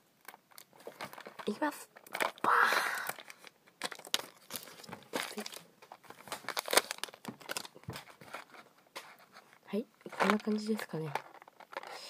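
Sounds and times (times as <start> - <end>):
cardboard box crinkling: 0.2 - 2.4, 3.0 - 9.4, 10.1 - 12.0.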